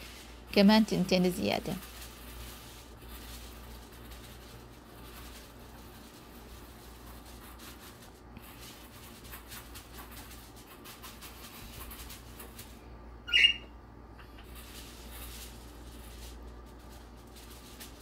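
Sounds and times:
aluminium foil crinkling: 0.0s - 12.8s, 14.2s - 18.0s
sharp high squeak: 13.3s - 13.7s.

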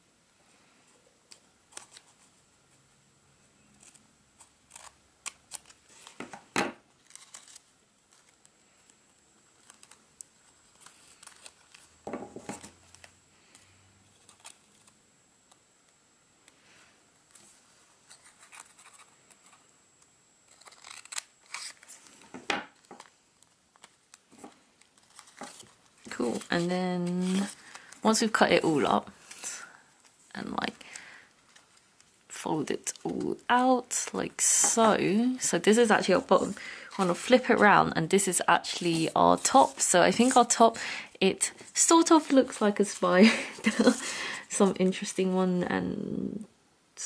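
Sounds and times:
paper rustling: 7.0s - 14.9s, 20.5s - 30.2s, 38.3s - 40.7s
scissors snipping paper: 20.5s - 21.8s.

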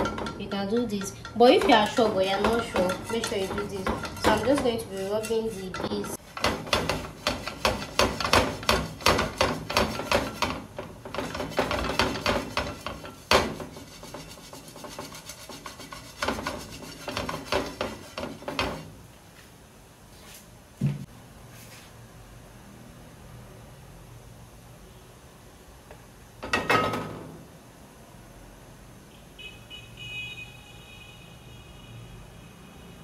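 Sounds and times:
brush scrubbing a frying pan: 0.0s - 19.0s.

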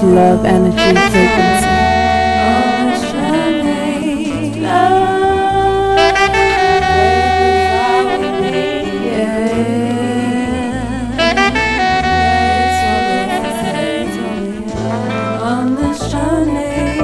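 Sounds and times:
repeating bass note: 0.0s - 3.5s, 4.6s - 17.0s
intro music with held notes: 0.0s - 17.0s.

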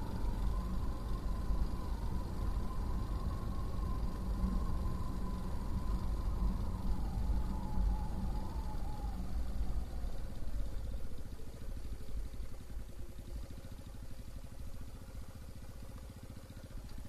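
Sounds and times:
wind rumble on microphone: 0.0s - 12.4s
motorcycle engine running: 0.0s - 17.0s.

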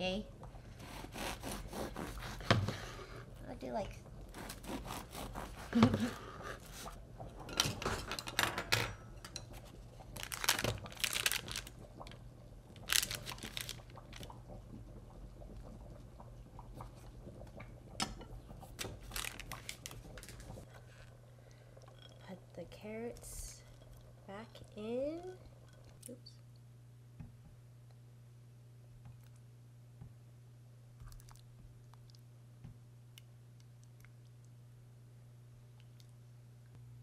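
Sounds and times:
bread knife sawing crusty loaf: 0.8s - 3.0s, 4.3s - 6.2s
paper wrapper crinkling: 10.1s - 11.8s, 12.8s - 14.3s, 18.8s - 20.6s.

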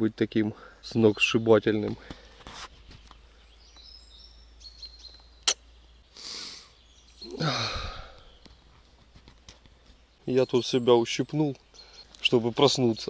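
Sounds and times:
faint birdsong: 0.0s - 13.0s
man breathing in sharply: 6.2s - 6.8s, 7.4s - 8.4s
man sighing: 6.2s - 8.4s.

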